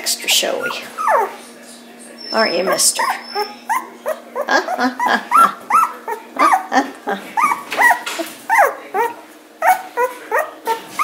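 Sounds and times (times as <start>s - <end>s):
puppies squealing and whining: 0.4s - 1.6s, 2.2s - 11.0s.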